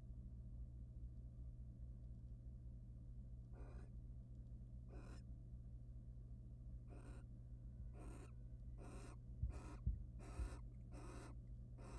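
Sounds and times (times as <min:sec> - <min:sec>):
steady electrical hum: 0:00.0 - 0:11.9
owl hissing calls: 0:03.6 - 0:03.9, 0:04.9 - 0:05.2, 0:06.9 - 0:07.3, 0:08.0 - 0:11.9.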